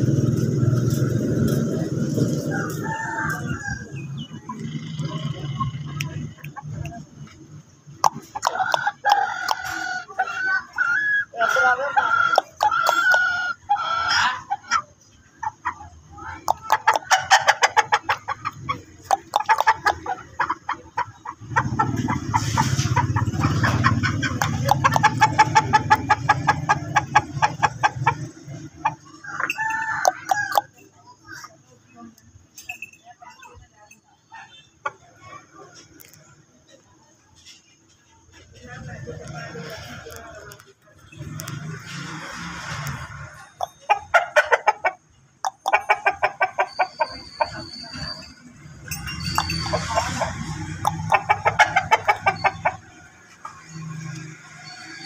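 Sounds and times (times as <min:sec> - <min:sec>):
rooster clucking: 0:00.0 - 0:32.4, 0:33.2 - 0:36.8, 0:37.4 - 0:55.0
rooster crowing: 0:02.3 - 0:04.1, 0:29.2 - 0:30.7.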